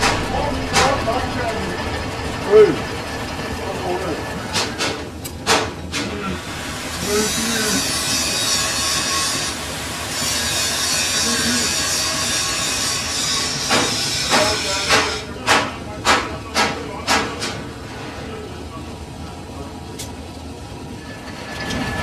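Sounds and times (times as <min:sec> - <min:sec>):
sharp metallic knocks: 0:00.0 - 0:03.4, 0:13.6 - 0:17.6
machine hiss: 0:06.2 - 0:16.2.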